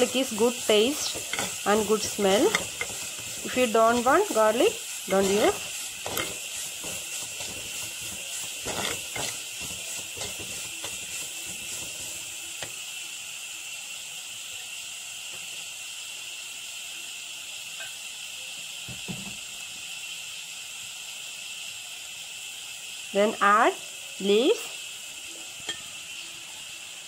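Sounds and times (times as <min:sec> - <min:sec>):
spoon scraping a pot: 0:00.0 - 0:12.7
food sizzling in oil: 0:00.0 - 0:27.0.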